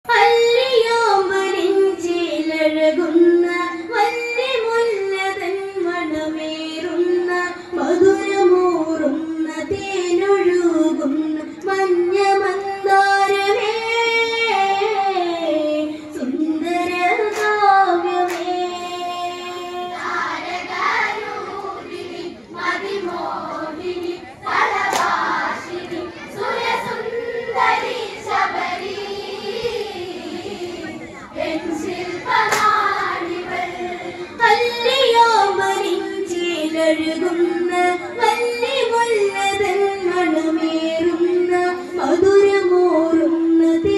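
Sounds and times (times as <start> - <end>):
girl singing folk song: 0.0 - 43.9
women singing together: 0.0 - 43.9
hand claps: 17.2 - 17.6, 18.2 - 18.6, 24.8 - 25.2, 32.4 - 32.9.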